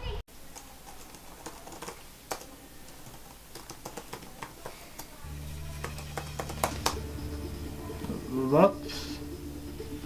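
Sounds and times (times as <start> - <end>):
laptop keyboard typing: 0.4 - 7.2
low steady hum: 4.3 - 10.0.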